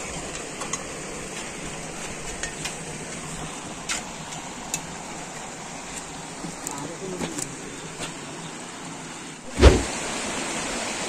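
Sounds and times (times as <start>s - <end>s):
stream running over rocks: 0.0s - 11.0s.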